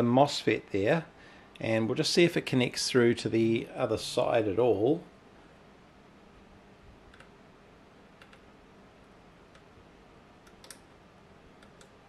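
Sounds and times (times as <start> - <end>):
probe tips clicking on circuit board: 11.6 - 12.0.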